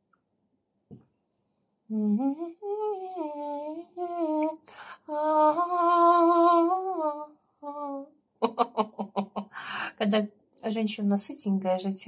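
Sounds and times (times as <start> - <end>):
woman humming: 1.9 - 8.1
quick breath: 9.5 - 9.9.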